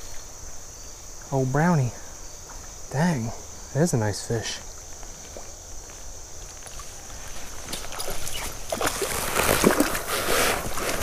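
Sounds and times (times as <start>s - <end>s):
cricket trill: 0.0s - 11.0s
water splashing and sloshing: 6.6s - 11.0s.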